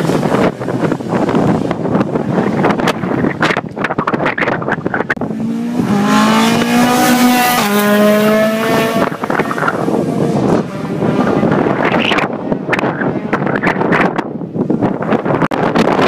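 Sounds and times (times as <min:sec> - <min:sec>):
wind buffeting microphone: 0:00.0 - 0:16.0
rally car engine passing at speed: 0:05.2 - 0:13.5.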